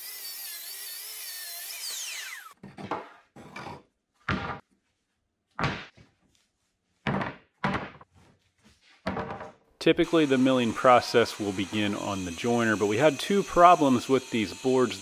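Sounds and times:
wooden boards knocking: 0:07.1 - 0:08.0
track saw spinning down: 0:10.0 - 0:15.0.

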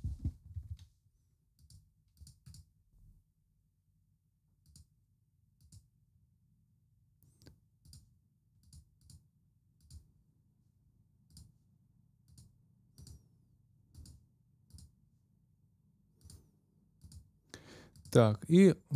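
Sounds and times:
faint computer mouse clicks: 0:12.2 - 0:13.2, 0:13.9 - 0:14.9, 0:16.2 - 0:16.4, 0:17.0 - 0:17.3.

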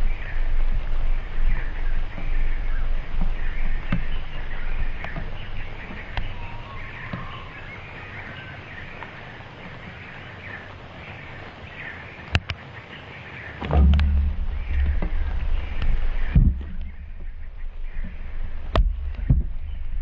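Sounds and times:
small birds chirping: 0:00.0 - 0:20.0
low rumble: 0:13.6 - 0:20.0.

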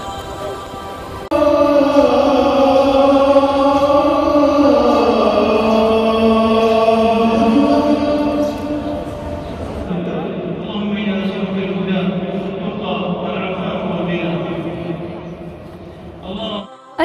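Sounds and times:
solo voice chanting: 0:00.0 - 0:09.0.

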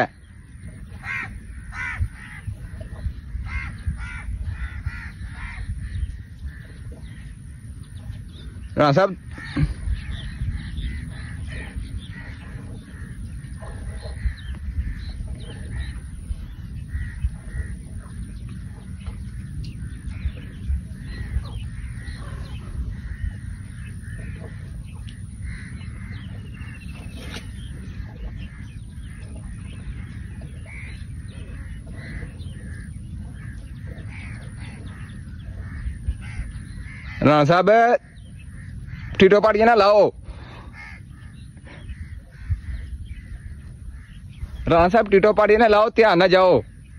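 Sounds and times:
birds calling: 0:00.0 - 0:46.9
wind rumble on microphone: 0:00.0 - 0:46.9
crows cawing: 0:01.0 - 0:02.8, 0:03.4 - 0:07.4, 0:16.8 - 0:17.8, 0:19.8 - 0:26.9, 0:28.0 - 0:44.7.

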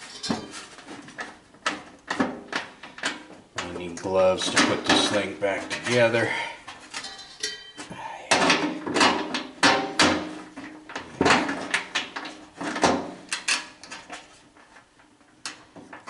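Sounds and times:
sheet metal clanking: 0:06.9 - 0:10.6.

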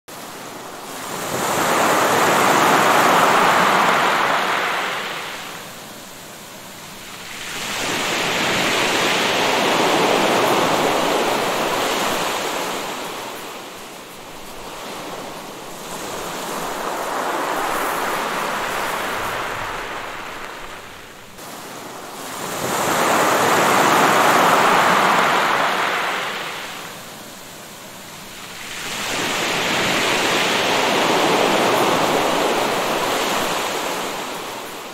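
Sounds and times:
sea waves breaking on shore: 0:00.1 - 0:34.9.

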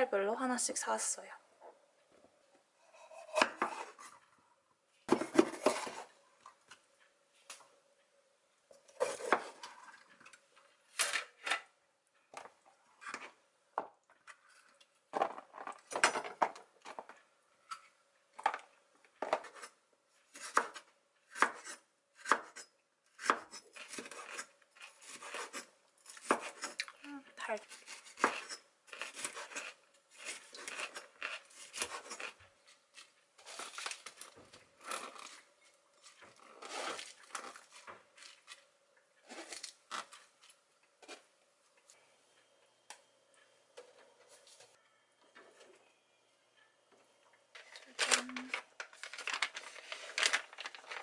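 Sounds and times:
knife slicing peppers: 0:23.2 - 0:26.8, 0:27.6 - 0:32.4.

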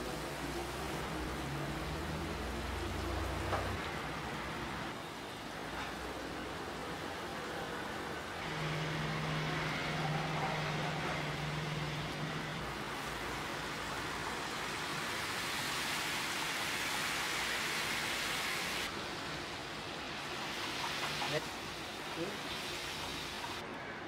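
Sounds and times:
batter sizzling in oil: 0:07.8 - 0:23.6.

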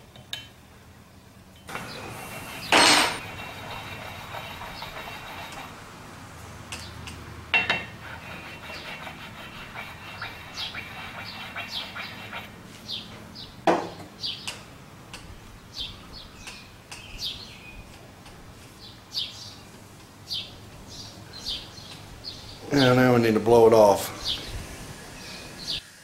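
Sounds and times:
small bird chirping: 0:20.3 - 0:22.9.

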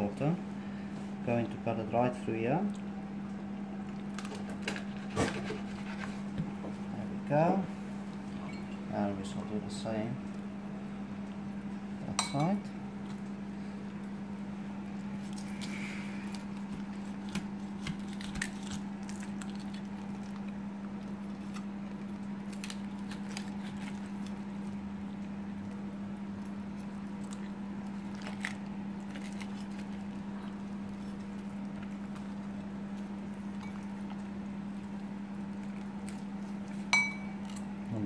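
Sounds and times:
steady low hum: 0:00.0 - 0:38.0
knife crunching through fish bone: 0:15.1 - 0:20.6, 0:22.4 - 0:24.5, 0:27.2 - 0:32.2.

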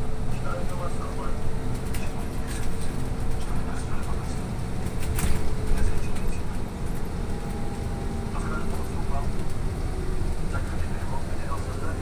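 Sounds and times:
bus tyres rumbling: 0:00.0 - 0:12.0.

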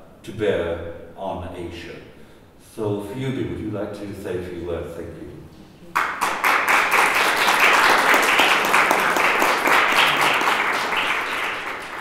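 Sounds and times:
audience applauding: 0:05.9 - 0:12.0.

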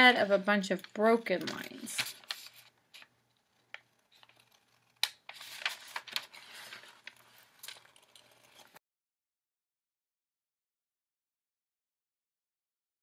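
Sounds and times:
paper rustling: 0:00.2 - 0:08.8
scissors snipping paper: 0:00.7 - 0:08.8.

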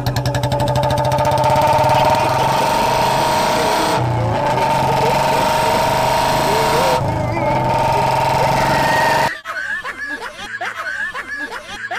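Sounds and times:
motorcycle engine revving: 0:00.0 - 0:09.3.

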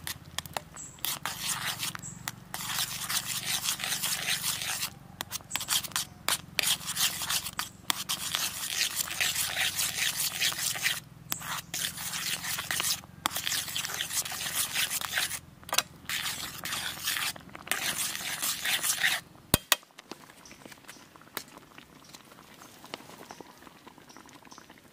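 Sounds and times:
metal spatula scraping a pan: 0:00.4 - 0:19.2.

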